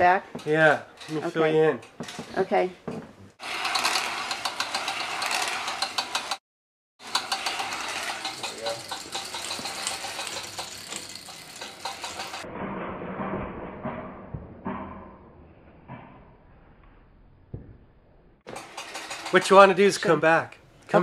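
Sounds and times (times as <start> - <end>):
machine running with fast rattle: 3.4 - 6.4, 7.0 - 12.5, 18.5 - 19.8
duller quieter machine sound: 7.0 - 12.4.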